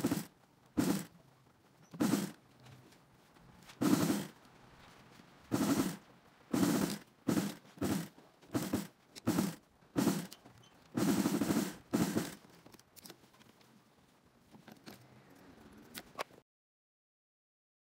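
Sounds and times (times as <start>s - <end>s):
sewing machine stitching: 0.0s - 1.2s, 1.8s - 2.4s, 3.8s - 4.4s, 5.5s - 12.5s.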